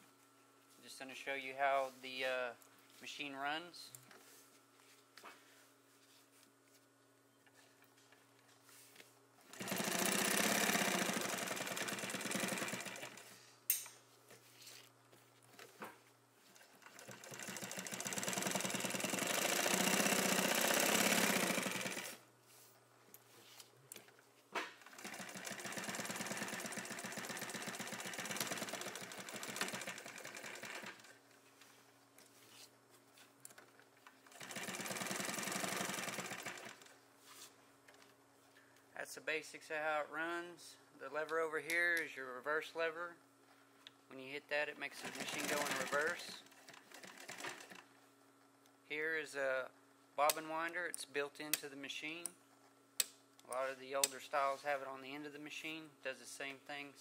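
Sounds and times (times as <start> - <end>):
industrial sewing machine stitching: 9.5 - 13.3, 16.8 - 22.2, 24.8 - 31.2, 34.2 - 36.9, 44.9 - 47.8.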